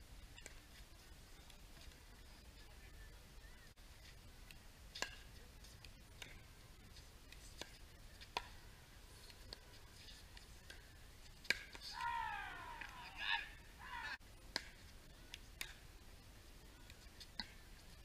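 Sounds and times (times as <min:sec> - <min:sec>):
paddles striking pickleball: 0:11.4 - 0:13.2
player calling out: 0:11.9 - 0:14.2.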